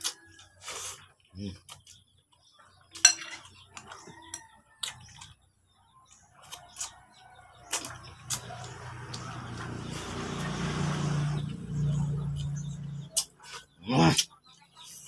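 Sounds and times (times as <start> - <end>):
metal spoon clinking on dishes: 3.0 - 3.5
eating smacks and clicks: 6.1 - 10.3.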